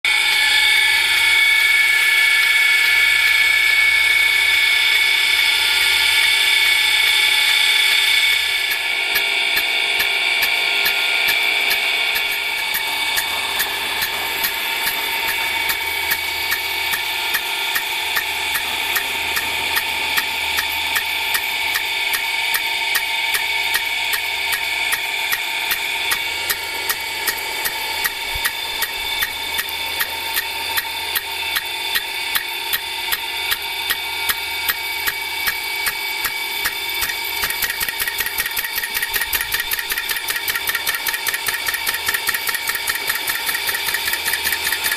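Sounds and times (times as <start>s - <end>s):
sprinkler arm clacking: 9.1s - 44.9s
water jet hissing: 11.3s - 22.6s, 25.6s - 32.8s.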